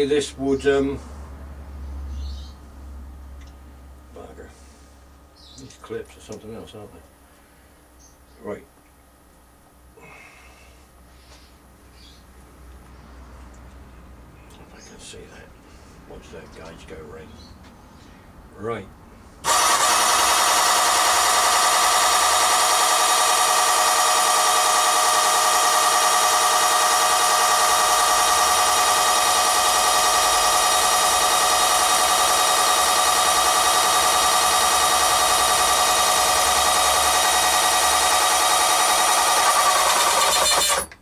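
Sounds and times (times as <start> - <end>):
electric pump motor whining: 19.4 - 41.0.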